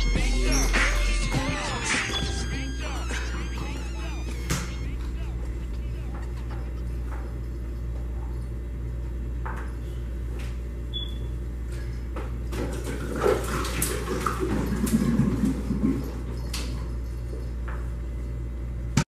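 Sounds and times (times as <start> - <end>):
water sloshing and glugging: 12.5 - 16.4.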